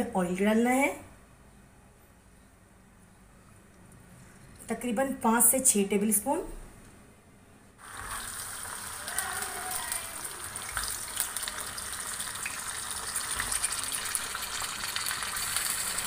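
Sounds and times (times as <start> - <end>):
chicken sizzling in hot oil: 7.8 - 16.0.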